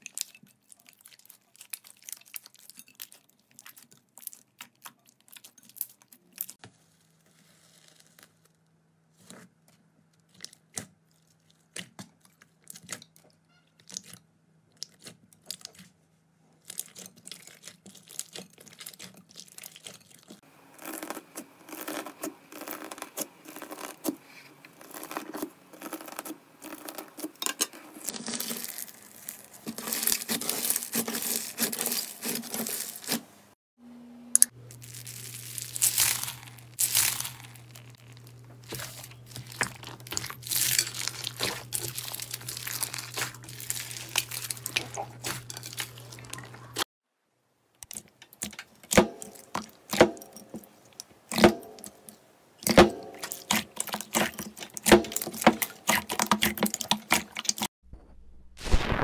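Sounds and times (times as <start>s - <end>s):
slime squelching and crackling: 0.0s - 8.6s, 9.2s - 33.3s, 34.7s - 46.9s, 47.8s - 57.7s, 58.6s - 59.0s
foam beads crunching: 16.7s - 27.3s, 28.0s - 33.2s, 34.6s - 46.8s.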